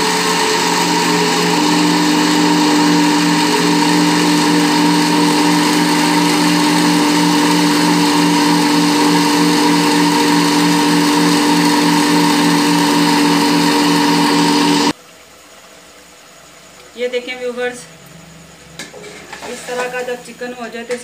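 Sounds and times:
blender running: 0.0 - 15.0.

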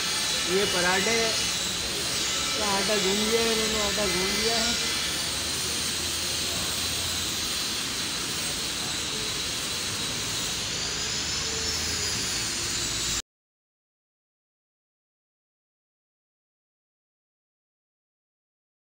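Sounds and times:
faint high whine: 0.0 - 13.2
steady rushing machinery noise: 0.0 - 13.2.

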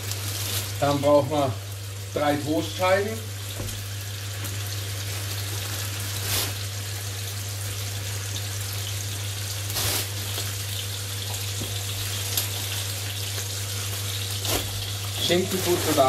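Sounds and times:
ham sizzling in a frying pan: 0.0 - 16.0.

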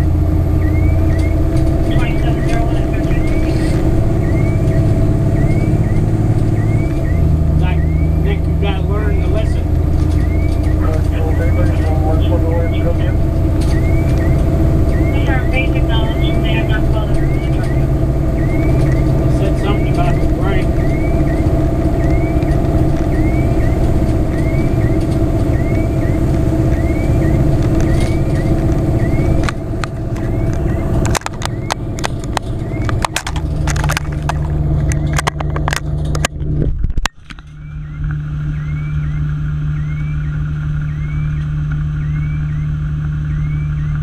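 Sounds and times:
low hum: 0.0 - 44.0
truck engine and road noise: 0.0 - 44.0
faint high chirp: 0.6 - 29.5, 37.4 - 44.0
clicks and knocks: 27.6 - 38.2.

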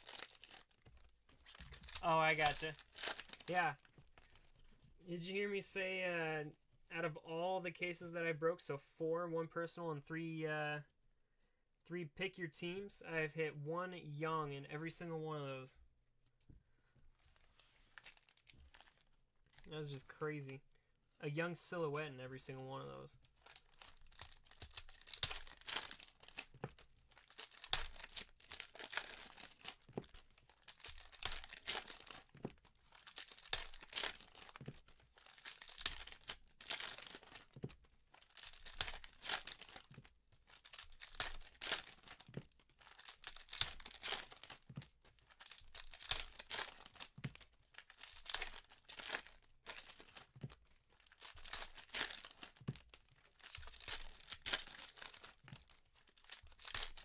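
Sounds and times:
foil wrappers tearing and crinkling: 0.0 - 4.4, 23.4 - 57.0.

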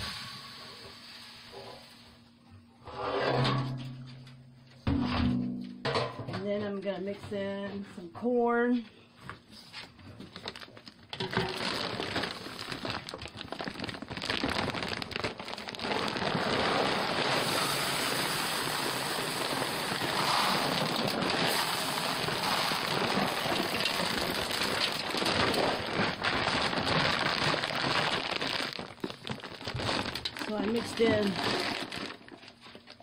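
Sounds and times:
corn kernels pouring into bucket: 0.0 - 2.0, 11.2 - 32.4.

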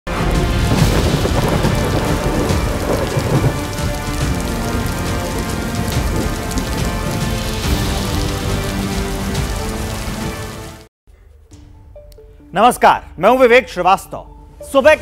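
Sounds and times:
heavy rain: 0.1 - 10.9
thunder rumbling and cracking: 0.1 - 10.9.

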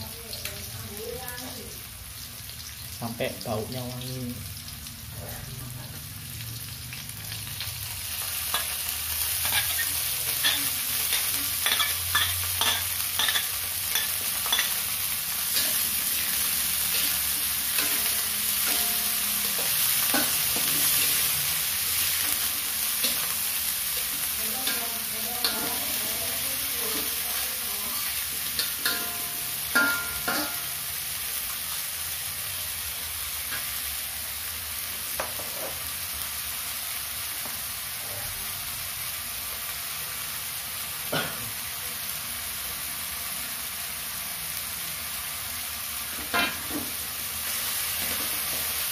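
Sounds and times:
vegetables sizzling in hot oil: 0.0 - 48.9
metal spatula scraping wok: 8.4 - 30.8.

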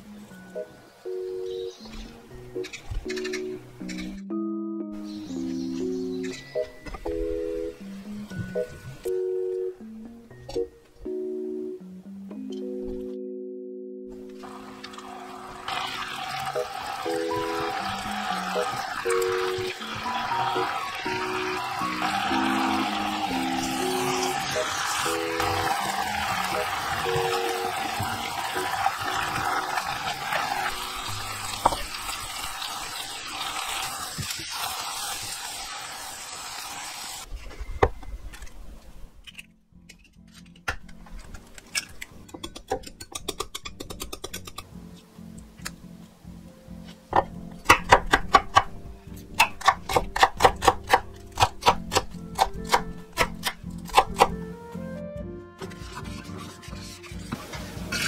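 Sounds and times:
sauce bubbling and sizzling in pan: 14.4 - 37.3
egg cracking: 39.2 - 44.7, 49.3 - 54.3.

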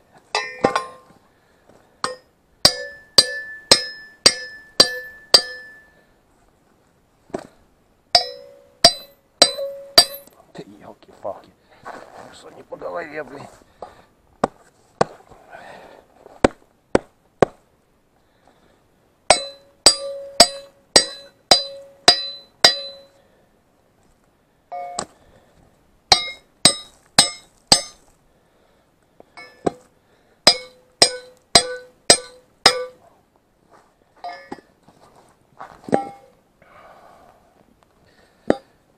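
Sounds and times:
hammer striking metal: 0.3 - 1.1, 2.0 - 6.0, 8.2 - 10.3, 19.3 - 23.2, 26.1 - 28.0, 30.4 - 33.0.

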